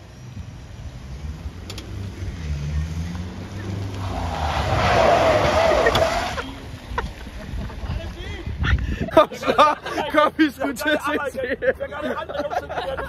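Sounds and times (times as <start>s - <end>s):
car engine accelerating: 1.0s - 6.8s
tyres hissing on wet road: 3.5s - 6.6s.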